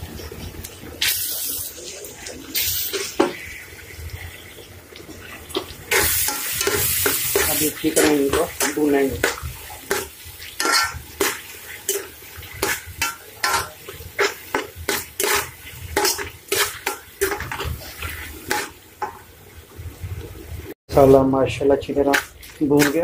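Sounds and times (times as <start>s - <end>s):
spoon scraping a metal pot: 10.6s - 18.7s.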